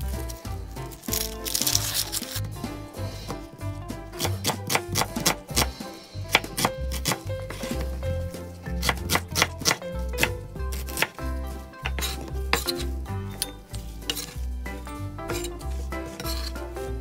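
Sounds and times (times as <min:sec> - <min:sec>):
background music: 0:00.0 - 0:17.0
knife chopping on wooden board: 0:04.1 - 0:08.0, 0:08.7 - 0:14.4.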